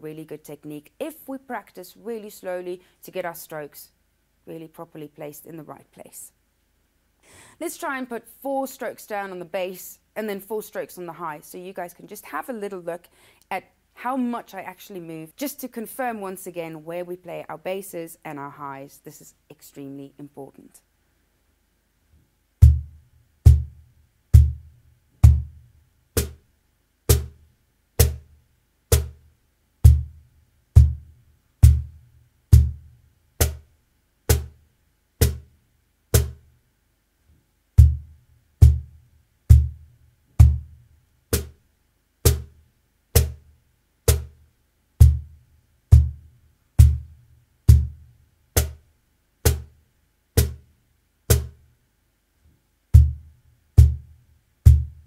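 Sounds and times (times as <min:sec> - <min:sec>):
cajon bass strokes: 0:22.6 - 0:26.4, 0:27.1 - 0:27.4, 0:28.0 - 0:33.7, 0:34.3 - 0:34.6, 0:35.2 - 0:35.5, 0:36.1 - 0:36.5, 0:37.8 - 0:41.6, 0:42.2 - 0:43.5, 0:44.1 - 0:44.4, 0:45.0 - 0:48.8, 0:50.4 - 0:50.7, 0:51.3 - 0:51.6, 0:53.0 - 0:55.0
cajon high slaps: 0:26.2 - 0:26.4, 0:27.1 - 0:27.4, 0:28.0 - 0:28.2, 0:28.9 - 0:29.2, 0:33.4 - 0:33.6, 0:34.3 - 0:34.6, 0:35.2 - 0:35.4, 0:36.1 - 0:36.4, 0:41.3 - 0:41.6, 0:42.3 - 0:42.5, 0:43.2 - 0:43.4, 0:44.1 - 0:44.3, 0:48.6 - 0:48.8, 0:49.5 - 0:49.7, 0:50.4 - 0:50.6, 0:51.3 - 0:51.6.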